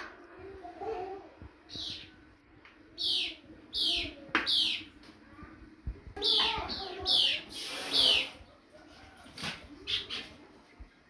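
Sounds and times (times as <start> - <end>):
bird chirping: 1.7 - 2.2, 2.9 - 5.0, 6.2 - 8.6, 9.8 - 10.9.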